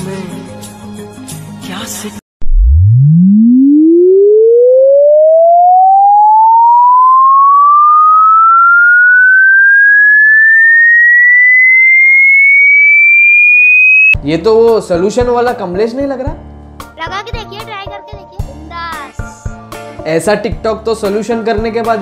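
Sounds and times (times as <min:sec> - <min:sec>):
rising electronic tone: 0:02.4 - 0:14.2.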